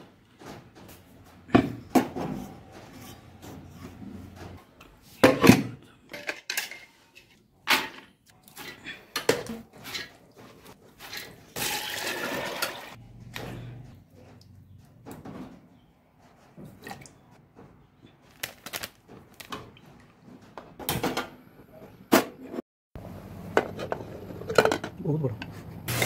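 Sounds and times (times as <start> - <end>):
metal cookware clinking: 6.1 - 7.0.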